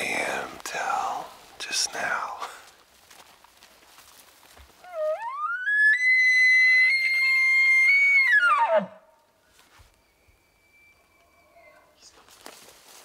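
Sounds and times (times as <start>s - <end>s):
elk bugle call whistling: 4.8s - 9.0s.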